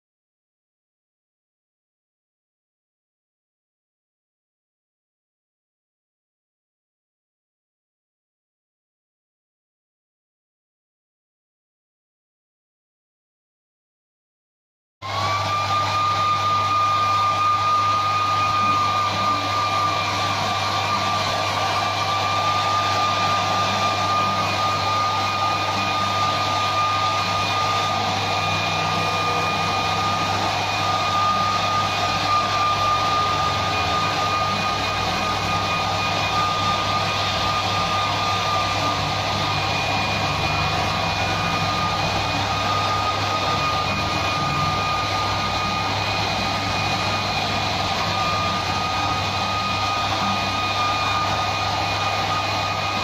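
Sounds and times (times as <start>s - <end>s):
hair dryer running: 15.0s - 53.0s.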